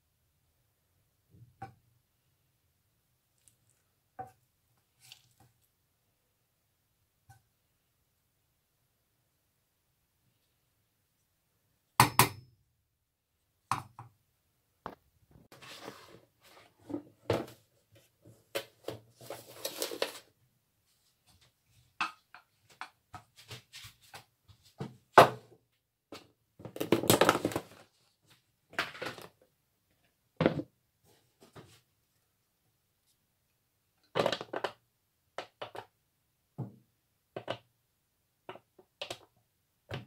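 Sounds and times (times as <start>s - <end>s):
plastic tub handled: 15.5s - 20.3s.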